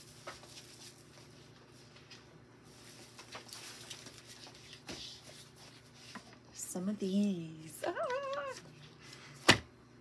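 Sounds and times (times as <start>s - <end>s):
low electrical hum: 0.0s - 10.0s
packaging rustling: 2.7s - 4.9s.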